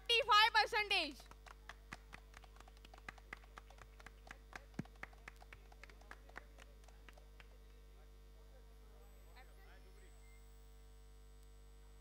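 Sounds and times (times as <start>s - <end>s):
electrical hum: 0.0s - 12.0s
audience clapping: 1.2s - 7.8s.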